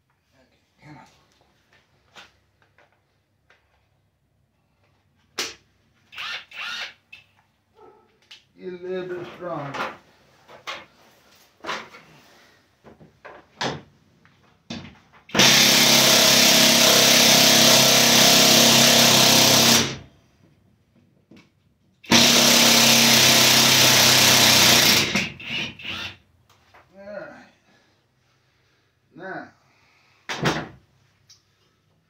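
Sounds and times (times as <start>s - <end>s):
cordless drill driving bolt: 6.1s - 7.0s, 15.3s - 20.0s, 22.1s - 26.2s.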